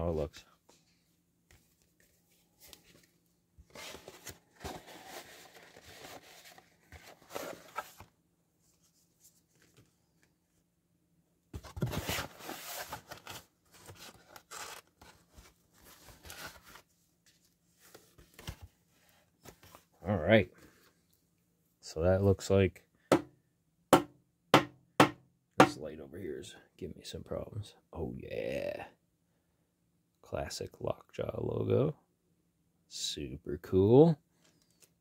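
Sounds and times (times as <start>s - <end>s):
packaging rustling and crinkling: 3.7s - 8.1s.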